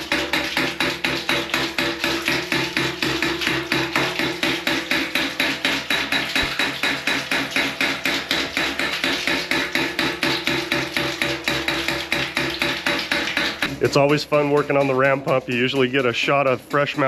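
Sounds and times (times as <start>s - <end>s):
pump valve slamming shut: 0.0s - 13.9s
water spurting: 0.0s - 17.0s.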